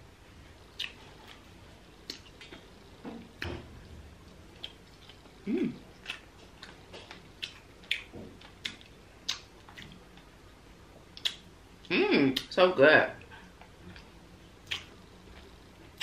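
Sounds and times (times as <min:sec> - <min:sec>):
chewing with wet mouth clicks: 0:00.8 - 0:01.4, 0:04.6 - 0:05.3, 0:05.9 - 0:10.3, 0:11.1 - 0:11.5, 0:13.2 - 0:16.0
low voice hum: 0:05.4 - 0:05.9.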